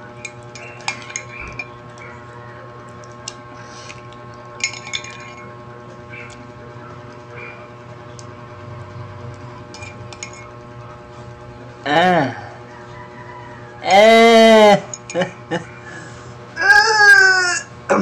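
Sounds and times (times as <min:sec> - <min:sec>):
metal spoon clinking on ceramic mug: 0:00.6 - 0:01.7, 0:04.6 - 0:05.4.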